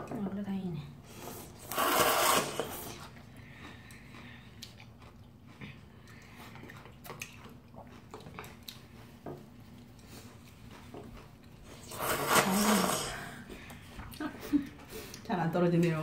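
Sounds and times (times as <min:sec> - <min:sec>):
loud noodle slurp: 0:01.2 - 0:03.1, 0:11.8 - 0:13.3
people chewing and smacking: 0:01.4 - 0:16.0.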